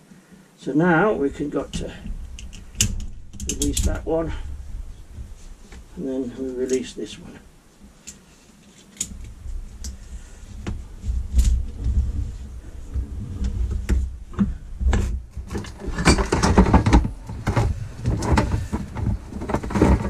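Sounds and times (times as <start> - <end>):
low rumble: 1.0 - 7.7, 9.2 - 20.0
metal parts rattling on bench: 15.5 - 17.1.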